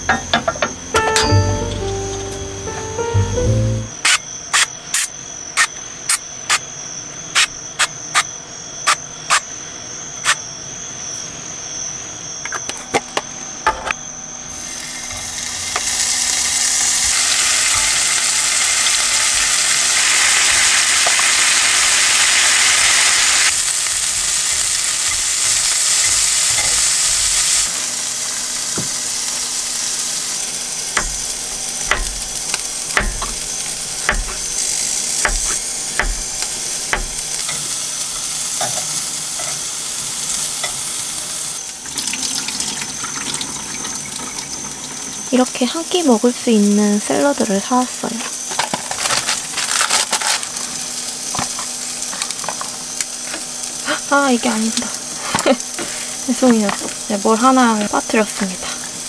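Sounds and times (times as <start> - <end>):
food sizzling on grill pan: 14.6 - 42.2, 45.8 - 59.0.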